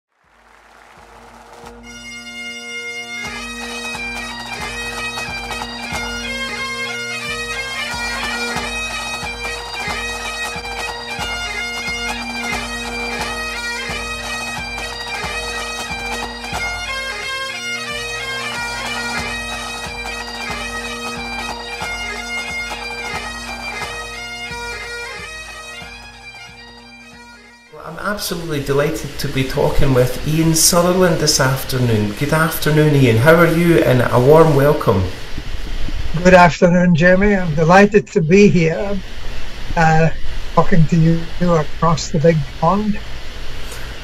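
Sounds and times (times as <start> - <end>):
steady drum beat: 0.2 - 35.1
bagpipes playing a lively tune: 0.4 - 35.4.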